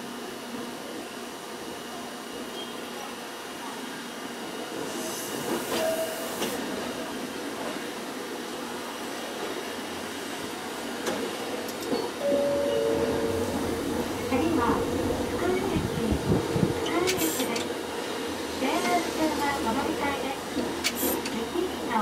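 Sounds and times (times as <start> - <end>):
tram running rumble: 0.0 - 22.0.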